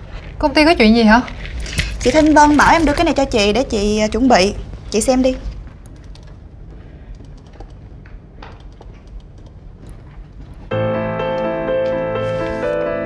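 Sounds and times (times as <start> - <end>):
soft piano-like keyboard music: 10.7 - 13.0.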